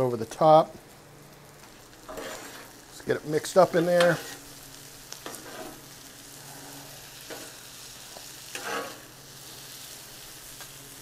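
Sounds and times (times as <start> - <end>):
food sizzling on griddle: 0.0 - 11.0
metal spatulas scraping: 2.1 - 2.8, 3.7 - 4.4, 5.2 - 5.8, 8.5 - 9.1.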